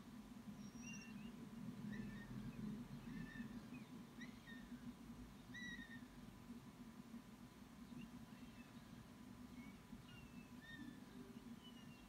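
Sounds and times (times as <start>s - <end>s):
low steady hum: 0.0s - 12.0s
high bird chirps: 0.5s - 4.9s, 5.5s - 6.2s, 9.5s - 12.0s.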